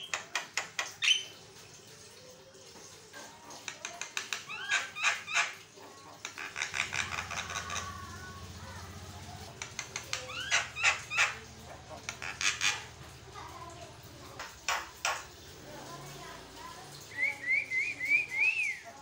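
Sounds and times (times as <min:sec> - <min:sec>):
myna bird calling: 0:04.1 - 0:13.0.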